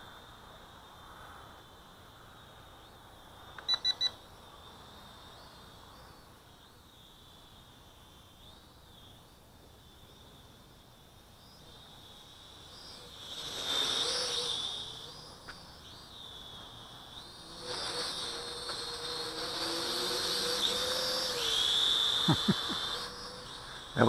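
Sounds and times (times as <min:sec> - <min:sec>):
quadcopter propellers whining: 0:11.4 - 0:24.0.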